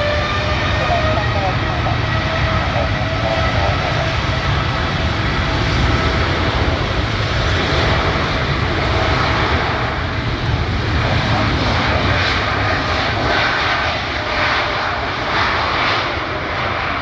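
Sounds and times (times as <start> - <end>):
jet engines at takeoff: 0.0 - 17.0.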